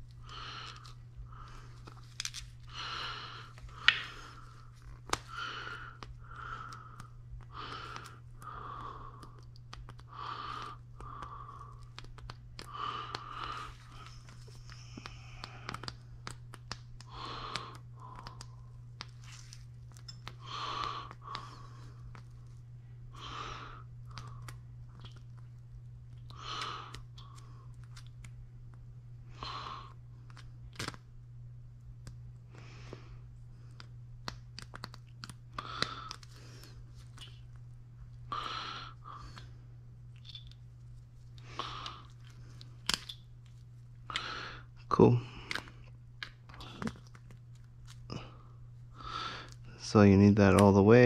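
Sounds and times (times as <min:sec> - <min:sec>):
person breathing: 0:00.0 - 0:16.4, 0:17.0 - 0:19.6, 0:20.2 - 0:24.7, 0:26.3 - 0:28.0, 0:32.5 - 0:33.9, 0:35.5 - 0:37.5, 0:38.2 - 0:39.8, 0:41.4 - 0:42.9, 0:44.0 - 0:47.1, 0:48.1 - 0:49.8
steady low hum: 0:00.0 - 0:51.0.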